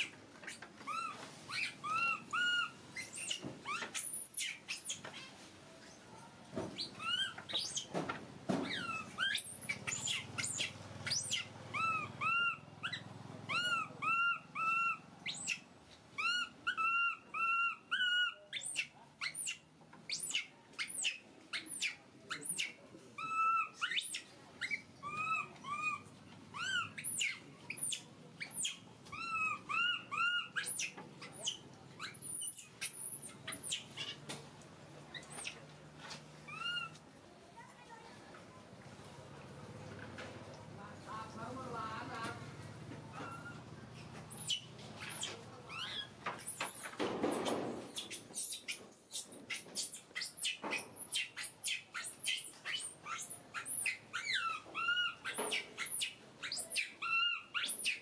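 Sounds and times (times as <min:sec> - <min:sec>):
baby monkey crying: 0:00.0 - 0:05.3, 0:06.8 - 0:07.9, 0:08.7 - 0:34.2, 0:36.5 - 0:37.0, 0:43.1 - 0:43.6, 0:44.3 - 0:47.0, 0:47.6 - 0:58.0.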